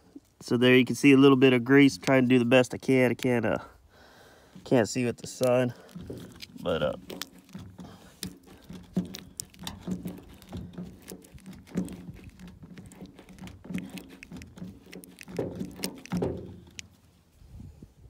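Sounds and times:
grease gun clicking: 1.8s - 2.3s, 4.6s - 17.0s.

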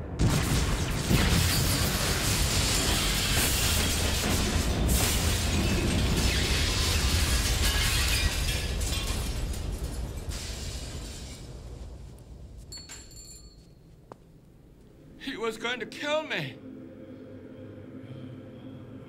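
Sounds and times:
glass shattering and crashing: 1.2s - 11.7s
dramatic music score: 15.0s - 19.0s.

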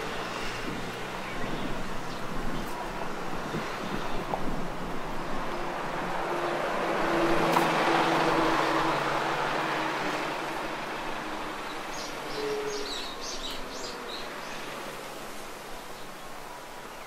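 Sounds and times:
vehicle engine and road noise: 0.0s - 17.0s.

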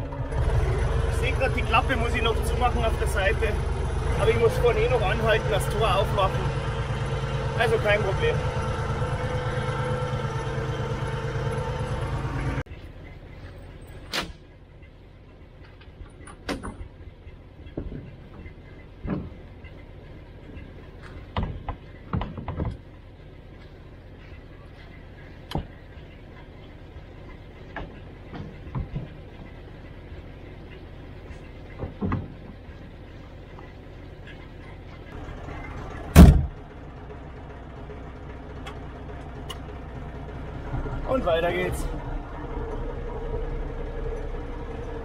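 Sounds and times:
tractor engine running: 0.0s - 45.0s
trailer board knocks and clunks: 16.2s - 16.9s, 17.7s - 19.5s, 21.1s - 22.9s, 27.7s - 29.3s, 31.4s - 32.7s, 36.1s - 36.6s.

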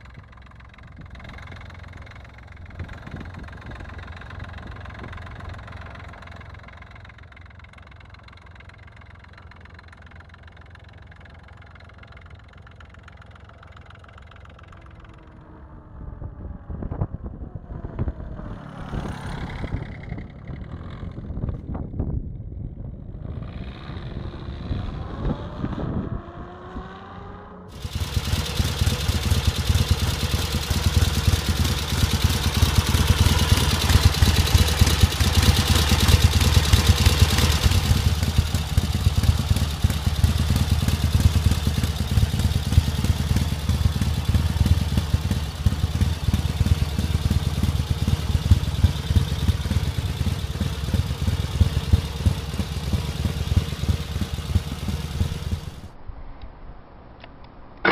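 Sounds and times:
motorcycle engine idling: 0.0s - 16.3s, 27.7s - 56.0s
motorcycle passing by: 14.9s - 21.8s, 22.7s - 56.0s.

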